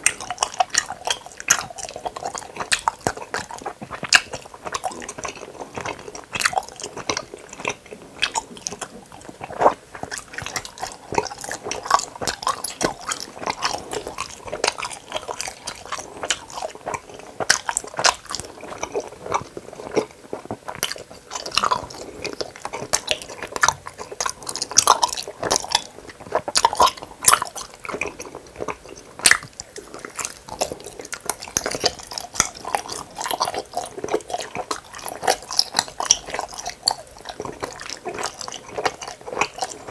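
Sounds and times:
chewing gummy candy: 0.0 - 39.9.

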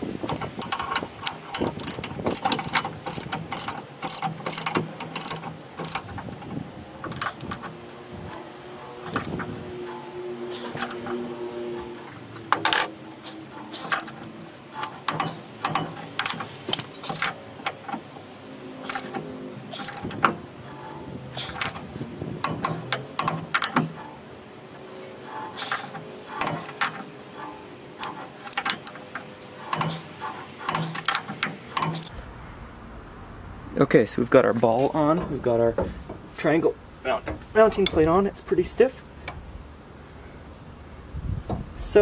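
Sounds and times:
torque wrench ratchet clicking: 0.3 - 6.5, 7.1 - 7.7, 9.1 - 9.4, 13.8 - 14.2, 18.9 - 20.1, 21.3 - 23.8.

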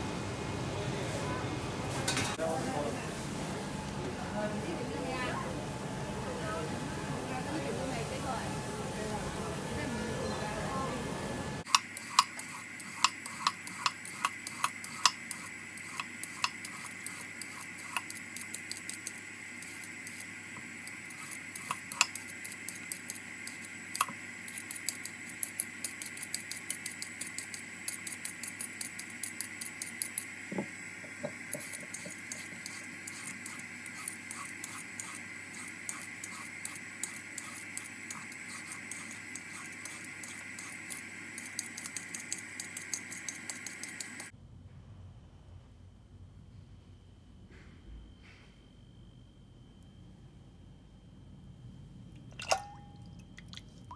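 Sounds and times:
vegetable peeler scraping: 11.7 - 30.4, 31.4 - 44.3.

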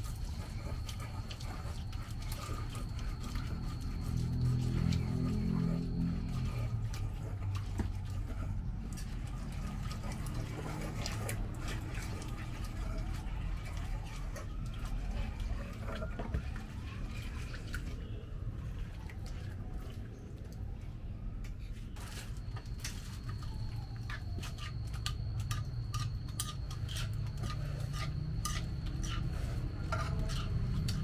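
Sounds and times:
pestle grinding in stone mortar: 0.0 - 18.0, 22.0 - 31.0
water pouring from jug: 0.0 - 20.4.

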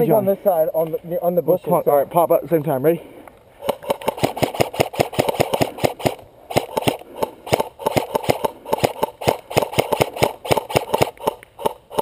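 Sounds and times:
airsoft rifles firing bursts: 3.6 - 12.0.

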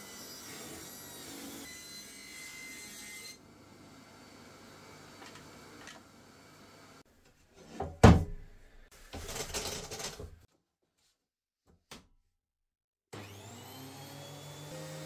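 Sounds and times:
planer motor whine spinning up: 13.2 - 15.0.

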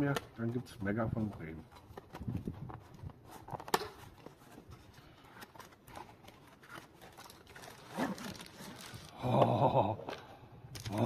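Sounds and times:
cardboard scraping and rustling: 1.2 - 9.1
cardboard flap snapping: 3.5 - 4.3.

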